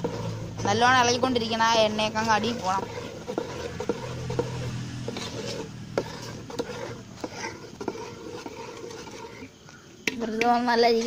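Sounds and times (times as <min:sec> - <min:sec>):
metal spoon scraping metal pot: 0:00.0 - 0:11.0.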